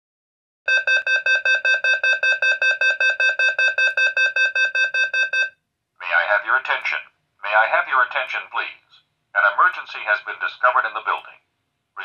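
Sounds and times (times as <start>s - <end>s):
rapid electronic alarm beeps: 0.7s - 5.5s.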